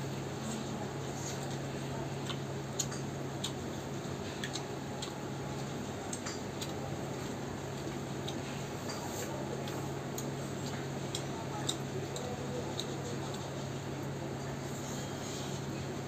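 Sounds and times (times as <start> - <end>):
wet chewing clicks and smacks: 1.4 - 8.6, 9.6 - 14.2.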